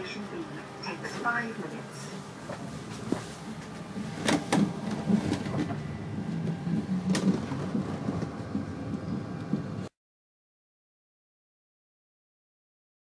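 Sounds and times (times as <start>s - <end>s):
pod car rolling rumble: 2.4s - 9.9s.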